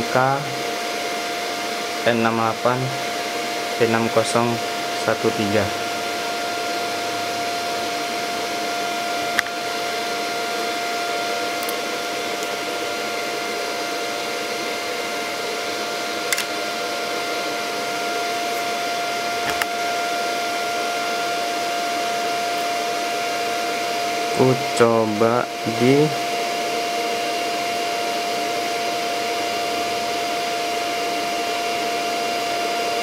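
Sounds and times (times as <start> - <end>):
steady whine: 0.0 - 33.0
welder fan hiss: 0.0 - 33.0.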